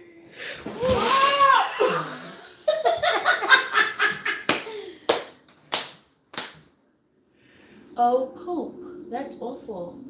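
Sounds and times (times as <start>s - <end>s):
woman laughing and squealing: 0.8s - 4.9s
hand claps: 4.4s - 6.7s.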